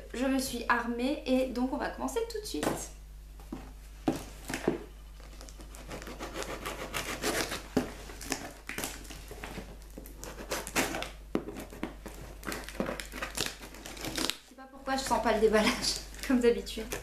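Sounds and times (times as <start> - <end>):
parcel packaging scraping and rustling: 5.0 - 14.5.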